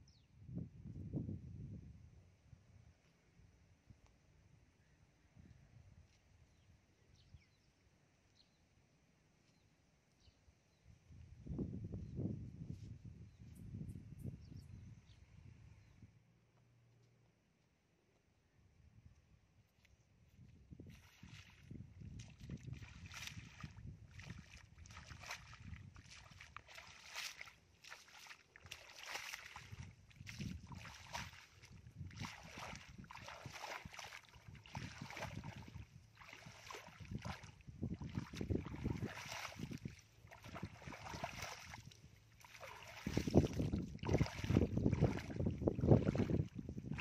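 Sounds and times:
bare feet splashing through water: 20.8 - 47.0.

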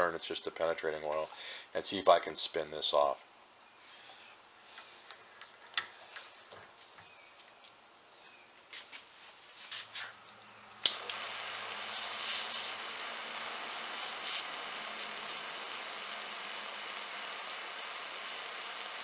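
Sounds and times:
gas torch hissing: 10.7 - 19.0
gas torch ignition click: 10.7 - 19.0.

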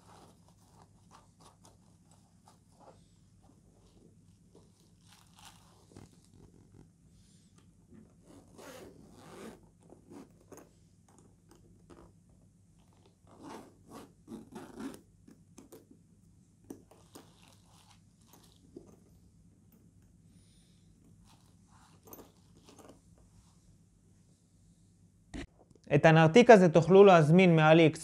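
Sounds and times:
zipper pulled on case: 0.0 - 2.9, 3.8 - 6.9, 8.0 - 12.2, 12.8 - 15.9, 16.8 - 19.0, 21.1 - 23.0.

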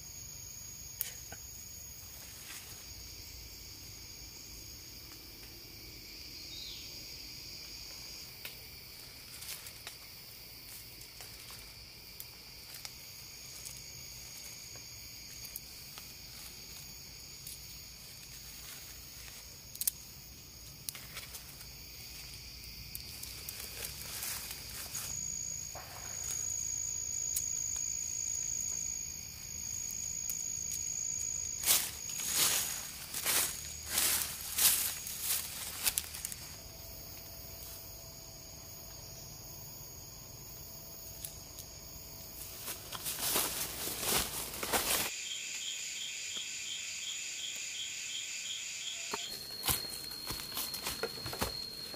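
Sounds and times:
higher insect tone: 0.0 - 51.9
insects droning: 0.0 - 51.9
dry leaves rustling and clicking: 10.7 - 25.2, 30.7 - 36.6, 42.4 - 45.1, 49.3 - 51.9.

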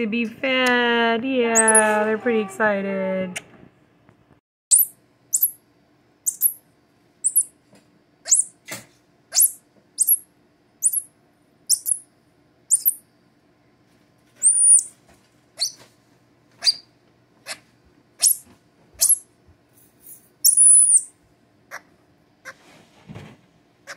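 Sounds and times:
monkeys peeping high-pitched: 1.6 - 2.0, 4.7 - 5.6, 6.3 - 6.6, 7.2 - 7.5, 8.3 - 8.6, 9.3 - 11.1, 11.7 - 12.0, 12.7 - 13.0, 14.4 - 14.9, 15.6 - 15.8, 16.6 - 19.3, 20.4 - 21.9.

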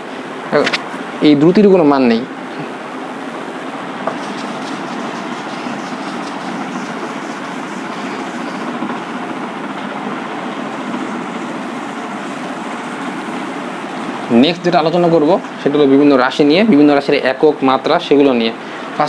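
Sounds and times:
eraser scrubbing whiteboard: 4.1 - 9.6, 10.6 - 14.1.

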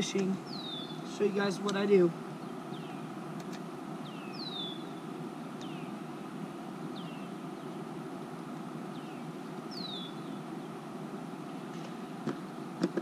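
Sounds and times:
outdoor background rumble: 0.0 - 13.0
songbird whistled call: 0.5 - 1.0, 4.0 - 5.0, 8.9 - 10.4.

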